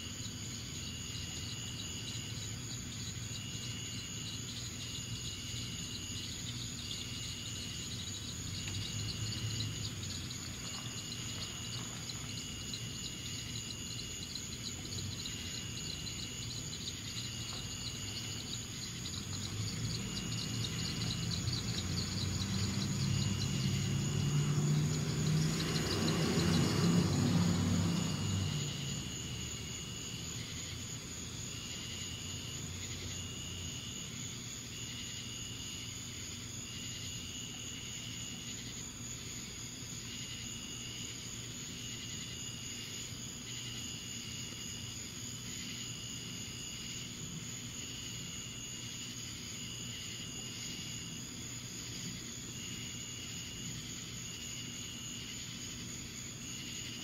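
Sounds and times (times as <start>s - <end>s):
insect repeated calls: 0.0s - 57.0s
insect steady high chirr: 0.0s - 57.0s
vehicle passing: 19.1s - 30.0s.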